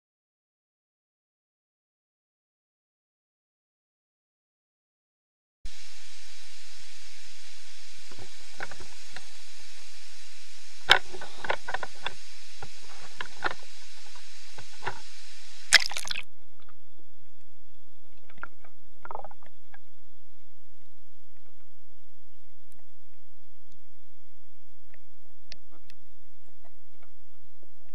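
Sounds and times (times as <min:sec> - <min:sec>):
waterfall hiss: 0:05.7 - 0:16.2
faint high whine: 0:05.7 - 0:27.9
loud splash: 0:15.7 - 0:16.2.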